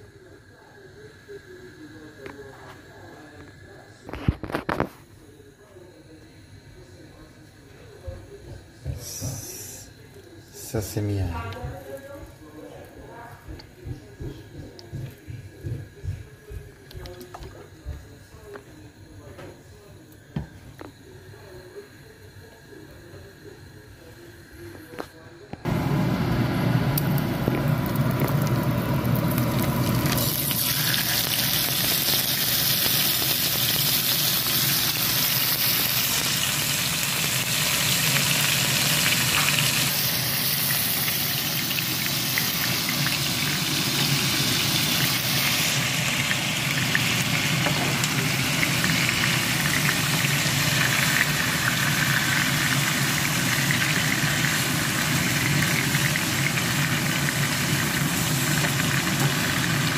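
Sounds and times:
steak sizzling in frying pan: 0:26.8 - 0:59.9.

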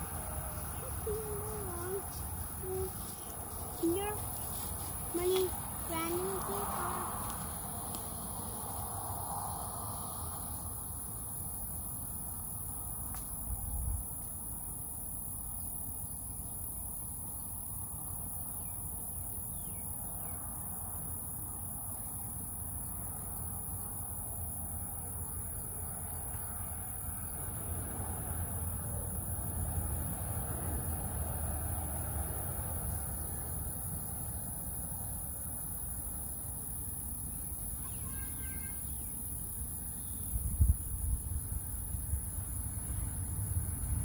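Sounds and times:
low outdoor rumble: 0:00.0 - 0:12.0, 0:39.8 - 0:44.0
crickets droning: 0:00.0 - 0:44.0.

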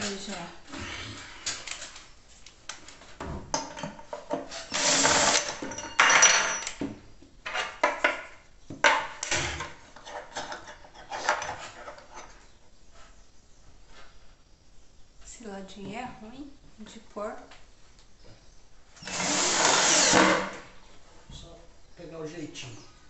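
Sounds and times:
cordless drill driving screws: 0:04.6 - 0:05.6, 0:19.0 - 0:20.5.

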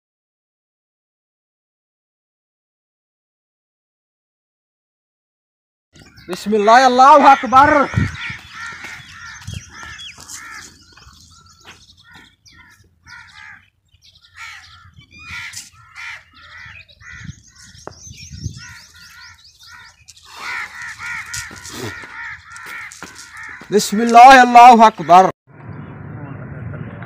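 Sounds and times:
crows cawing: 0:06.0 - 0:17.8, 0:18.5 - 0:25.3
bird chirping: 0:06.0 - 0:24.2.

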